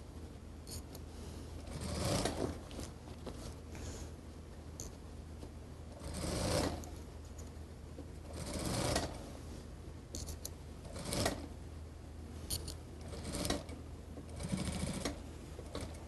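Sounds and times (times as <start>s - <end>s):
sewing machine stitching: 1.6s - 2.6s, 6.0s - 6.9s, 8.3s - 9.2s, 10.9s - 11.5s, 13.0s - 16.0s.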